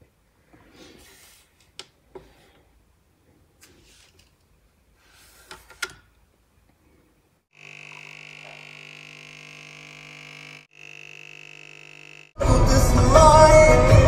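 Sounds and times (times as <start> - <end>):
espresso machine pump buzzing: 7.5 - 12.4.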